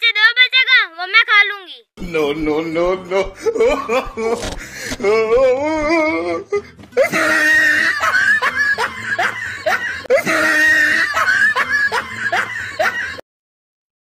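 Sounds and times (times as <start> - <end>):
laughing sound effect: 2.8 - 5.6, 7.0 - 13.2.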